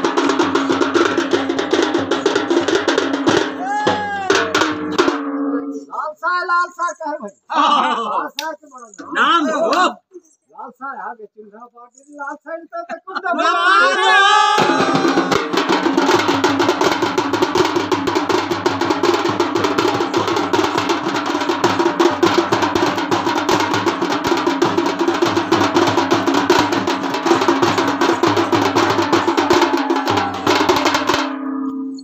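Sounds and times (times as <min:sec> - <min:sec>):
fast drumming with sticks: 0:00.0 - 0:05.4, 0:14.5 - 0:31.4.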